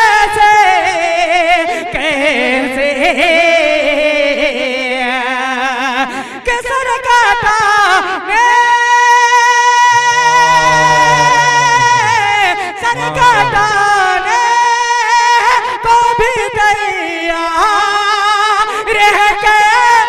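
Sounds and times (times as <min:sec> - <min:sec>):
man singing melodic chant: 0:09.9 - 0:15.3.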